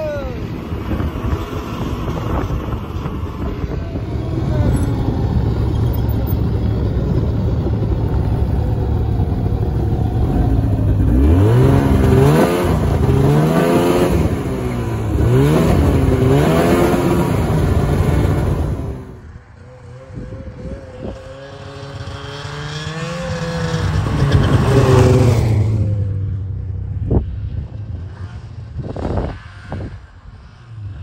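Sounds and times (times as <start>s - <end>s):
snowmobile engine droning: 0.0s - 31.0s.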